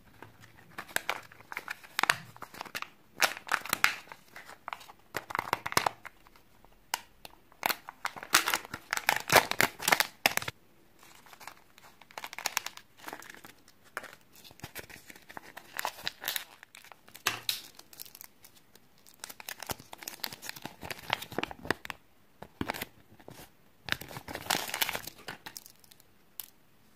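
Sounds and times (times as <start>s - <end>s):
plastic wrapping crinkling: 0.2s - 6.4s, 7.0s - 26.5s.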